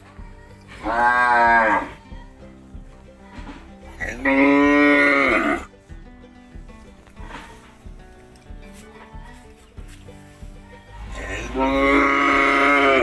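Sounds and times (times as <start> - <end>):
quiet background music: 0.0 - 13.0
cow mooing: 0.8 - 2.0, 4.0 - 5.7, 11.2 - 13.0.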